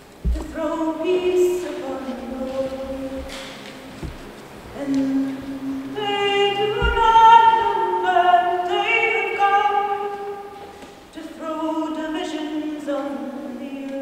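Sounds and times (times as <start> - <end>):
short low thump: 0.2 - 0.6, 6.8 - 7.3
unaccompanied voices singing: 0.2 - 10.2.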